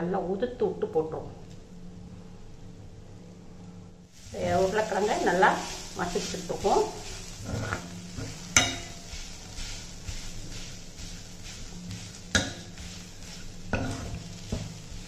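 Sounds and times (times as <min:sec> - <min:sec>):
food sizzling: 0:04.1 - 0:15.0
spoon scraping a metal pan: 0:05.6 - 0:14.8
spoon clinking on pan: 0:08.6 - 0:09.0.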